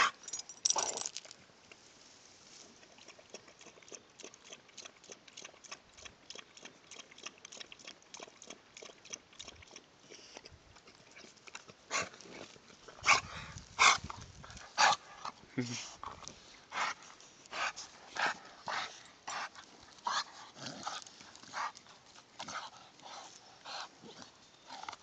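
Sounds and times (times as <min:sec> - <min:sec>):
dog lapping water: 0:02.8 - 0:12.2.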